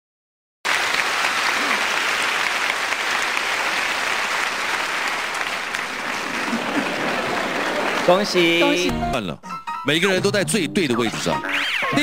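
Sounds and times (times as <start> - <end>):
audience applauding: 0.7 - 8.9.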